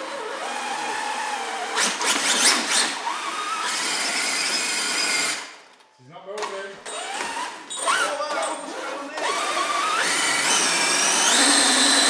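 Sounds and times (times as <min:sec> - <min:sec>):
electric motor whining: 0:08.7 - 0:12.0.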